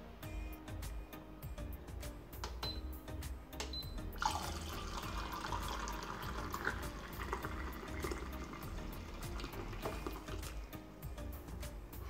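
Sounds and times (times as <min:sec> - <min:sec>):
hot water pouring into mug: 0:04.2 - 0:10.6.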